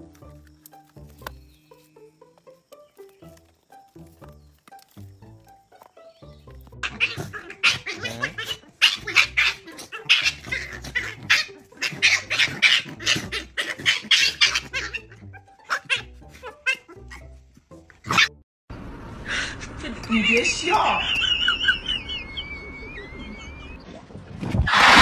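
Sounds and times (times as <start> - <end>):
puppy yapping and yelping: 6.7 - 17.3.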